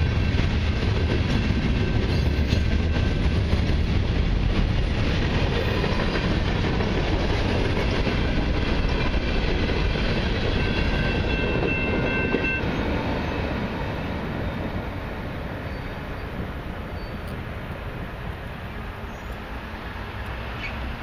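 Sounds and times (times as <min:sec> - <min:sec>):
freight train wheels rumbling: 0:00.0 - 0:21.0
high squeal of train wheels: 0:01.7 - 0:03.2, 0:10.3 - 0:14.6, 0:15.5 - 0:17.5, 0:20.4 - 0:21.0.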